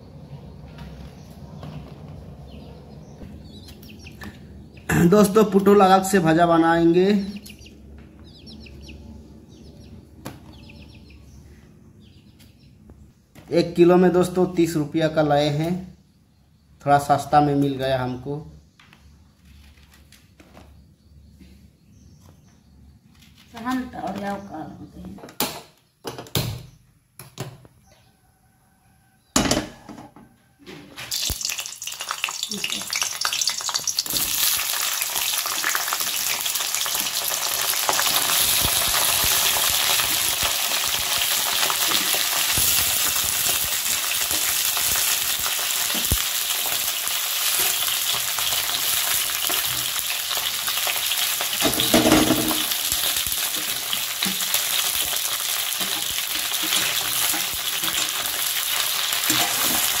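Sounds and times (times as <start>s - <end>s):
vegetables sizzling in hot oil: 31.1s - 60.0s
metal spatula scraping wok: 55.8s - 58.4s, 59.2s - 60.0s.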